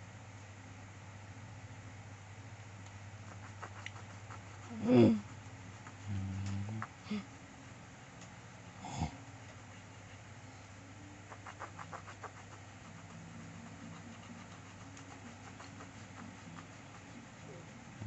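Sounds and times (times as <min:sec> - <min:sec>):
steady low hum: 0:00.0 - 0:18.0
pencil scratching on paper: 0:03.2 - 0:06.1, 0:09.4 - 0:10.4, 0:11.3 - 0:18.0.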